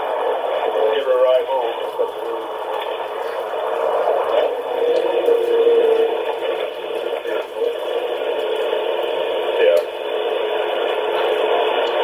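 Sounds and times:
indistinct radio voices: 0.0s - 12.0s
steady hiss: 0.0s - 12.0s.

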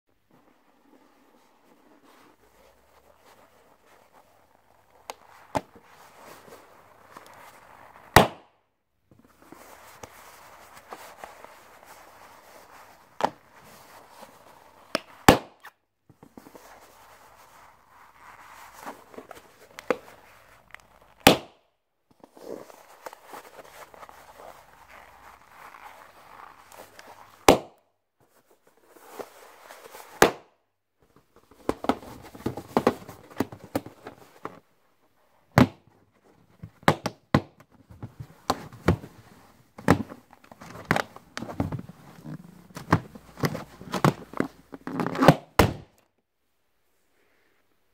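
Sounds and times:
balloons popping: 8.0s - 8.6s, 14.9s - 15.8s, 21.2s - 21.7s, 27.3s - 27.9s, 30.2s - 30.6s, 35.5s - 35.9s, 36.7s - 37.7s, 39.8s - 46.0s
balloon crackling: 23.8s - 27.8s.

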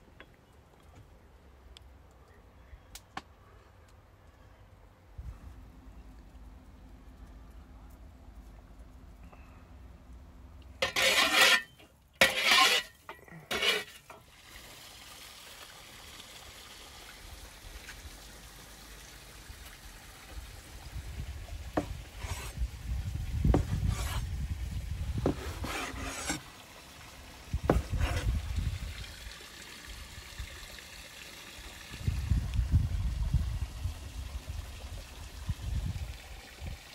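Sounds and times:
dull thuds and rubbing: 21.8s - 22.6s, 23.4s - 24.3s, 25.2s - 26.4s, 27.6s - 28.4s.

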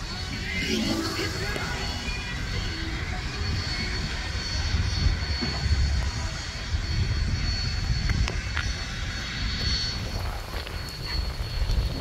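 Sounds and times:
faint high-pitched tone: 0.0s - 8.2s.

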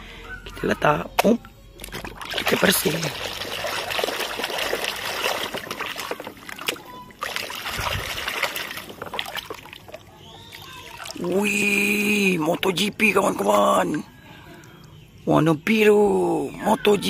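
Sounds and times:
water sloshing in a plastic basin: 1.7s - 15.2s.

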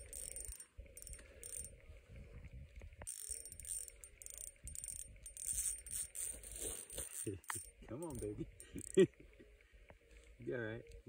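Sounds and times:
fishing reel clicking: 0.0s - 1.8s, 3.0s - 9.0s.

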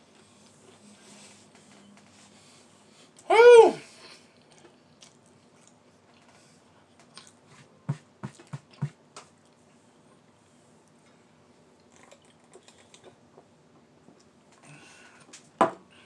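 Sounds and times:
quiet chewing: 4.0s - 7.5s, 8.3s - 13.5s.

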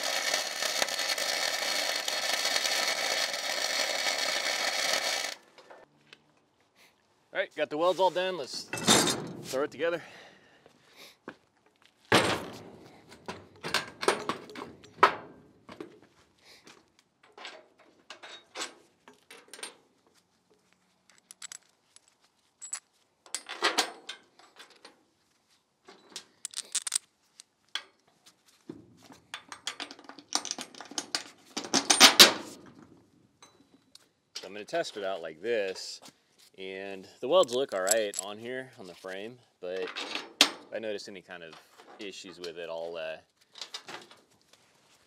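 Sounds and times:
metal parts clanking on steel deck: 8.7s - 9.5s.

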